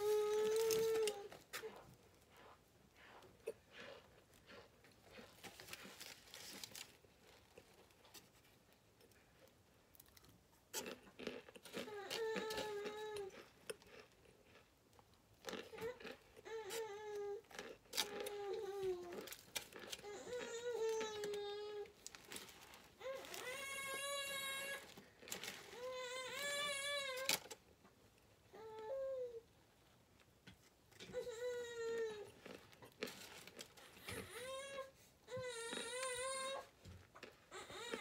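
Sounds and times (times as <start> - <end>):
foil crinkling: 0.0 - 1.6, 5.1 - 8.5, 17.9 - 27.6, 32.4 - 34.6
crunchy chewing: 0.0 - 8.4, 9.9 - 25.8, 32.2 - 34.3, 37.0 - 38.0.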